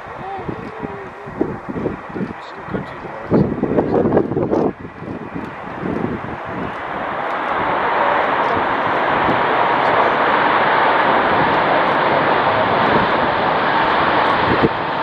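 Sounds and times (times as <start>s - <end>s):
jet engines rushing: 0.0s - 15.0s.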